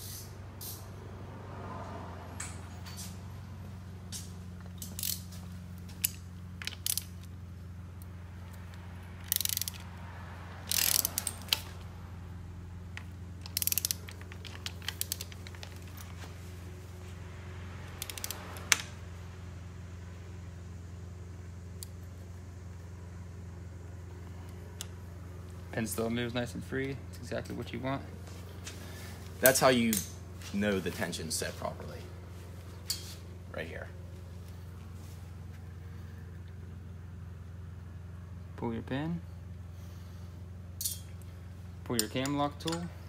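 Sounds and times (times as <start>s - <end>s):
ratchet clicking: 0.0s - 0.9s, 4.1s - 7.4s, 8.0s - 10.0s, 10.6s - 11.8s, 13.0s - 16.0s, 17.9s - 18.9s, 40.8s - 41.2s
steady low hum: 0.0s - 43.0s.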